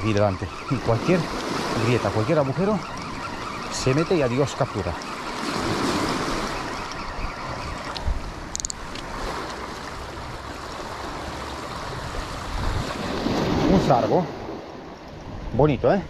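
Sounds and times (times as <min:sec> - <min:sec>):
sea surf washing: 0:00.0 - 0:16.0.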